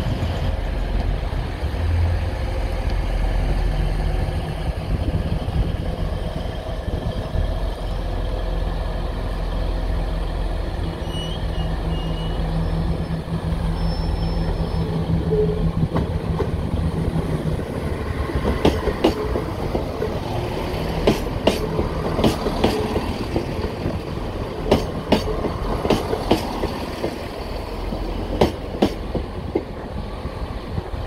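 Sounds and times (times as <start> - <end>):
diesel train rumbling past: 0.0 - 31.0.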